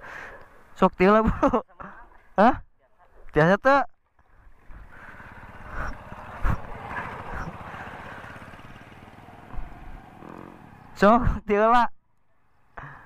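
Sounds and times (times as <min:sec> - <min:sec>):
scooter engine running: 0:04.3 - 0:11.1.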